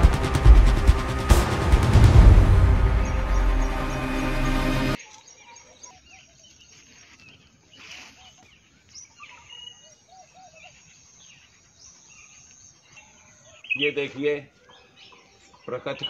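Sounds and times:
brief rush of noise: 0:00.0 - 0:05.0
birds chirping: 0:00.0 - 0:16.0.

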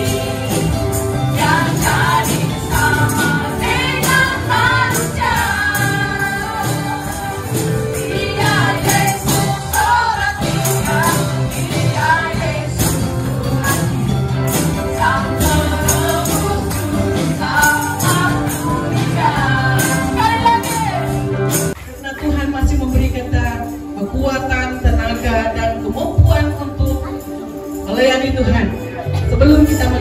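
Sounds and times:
group of voices singing: 0:00.0 - 0:21.4
church band playing: 0:00.0 - 0:30.0
drums and percussion beat: 0:00.0 - 0:30.0.

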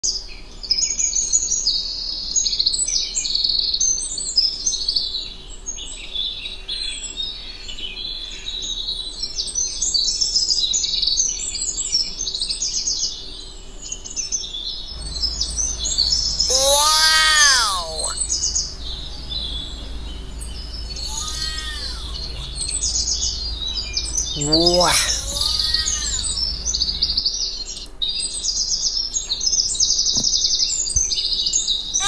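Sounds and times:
chorus of birds chirping: 0:13.1 - 0:32.0.

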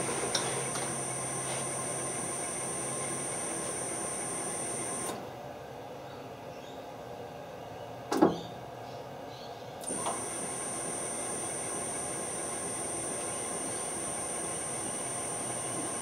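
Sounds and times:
lathe motor electrical whine: 0:00.0 - 0:05.3, 0:09.8 - 0:16.0.

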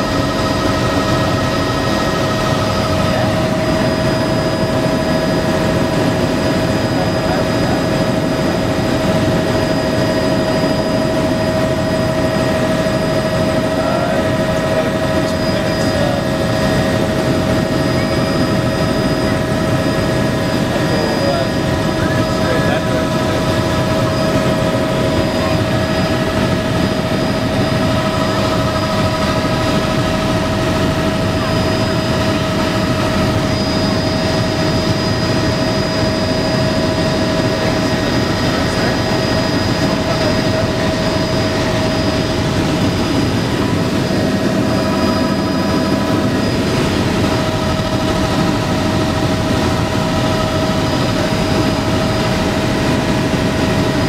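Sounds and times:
helicopter cabin noise: 0:00.0 - 0:54.0.

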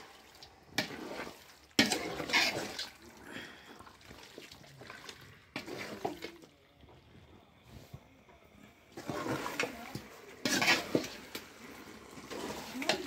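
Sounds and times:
spoon stirring wet chicken in pot: 0:00.0 - 0:03.1, 0:03.9 - 0:06.5, 0:08.9 - 0:13.0.

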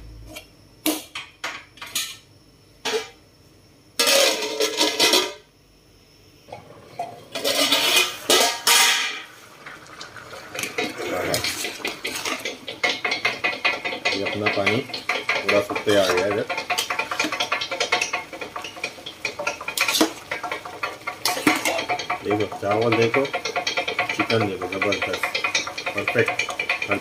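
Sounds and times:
ladle scraping aluminium pot: 0:07.0 - 0:27.0.

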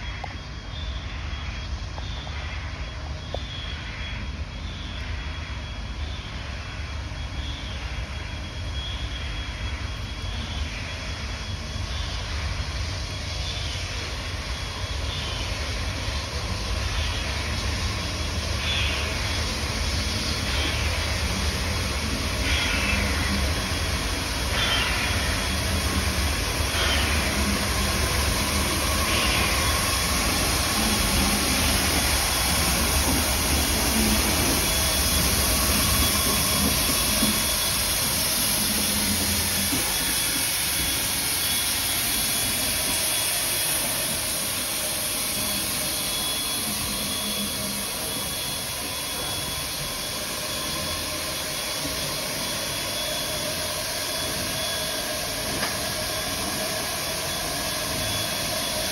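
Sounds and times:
locomotive low rumble: 0:00.0 - 0:51.2
steam hissing: 0:00.0 - 0:58.9.

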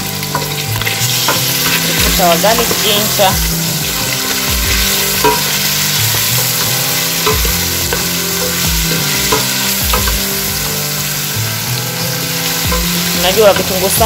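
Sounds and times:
meat sizzling in a pot: 0:00.0 - 0:14.0.

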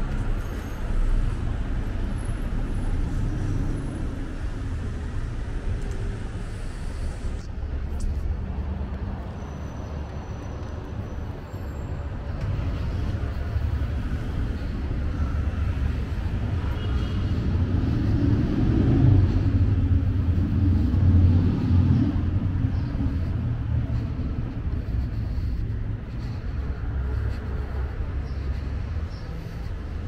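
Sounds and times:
low traffic rumble: 0:00.0 - 0:30.0
vehicle passing close by: 0:12.4 - 0:29.4.

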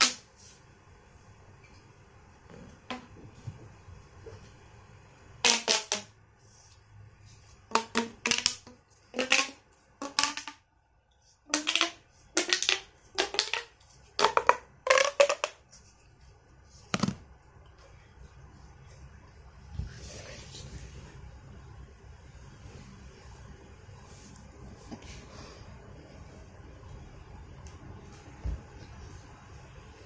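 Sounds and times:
plastic pop tube crackling: 0:05.4 - 0:06.1, 0:07.6 - 0:10.7, 0:11.5 - 0:15.8.

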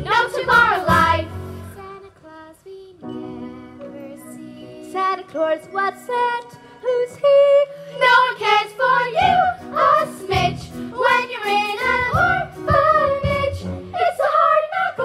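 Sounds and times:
music: 0:00.0 - 0:15.0
cast singing together: 0:08.0 - 0:15.0.

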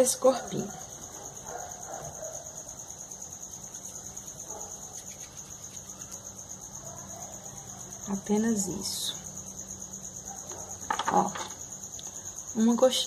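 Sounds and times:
cricket trilling: 0:00.0 - 0:13.0.

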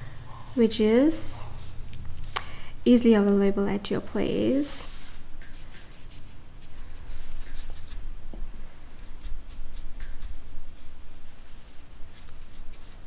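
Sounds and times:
paintbrush brushing on paper: 0:04.7 - 0:08.1, 0:08.9 - 0:13.0.

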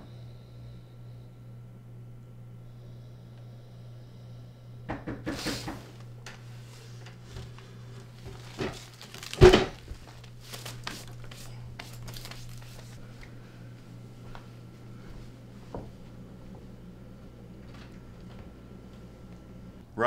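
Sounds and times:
rustling and handling: 0:05.4 - 0:13.0.

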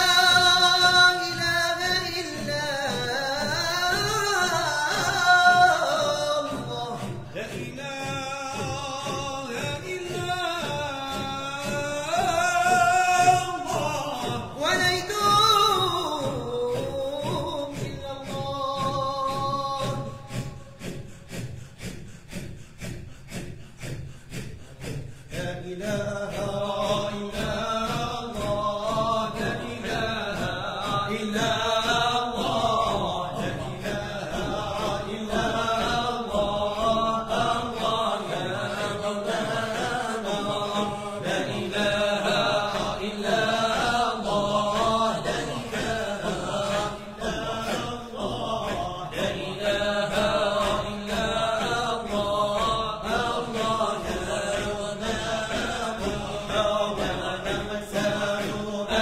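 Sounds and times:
men chanting together: 0:00.0 - 0:59.0.

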